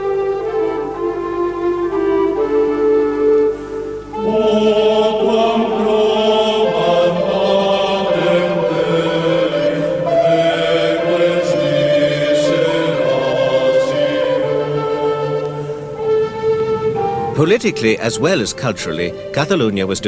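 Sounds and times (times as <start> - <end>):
voices singing slow chant: 3.5 - 19.5.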